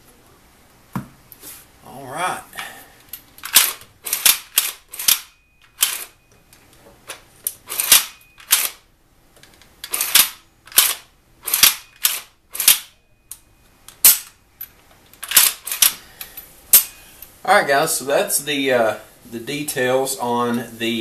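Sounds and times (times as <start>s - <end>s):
shotgun parts clacking: 3.0s - 6.2s, 9.4s - 12.9s, 13.9s - 16.0s.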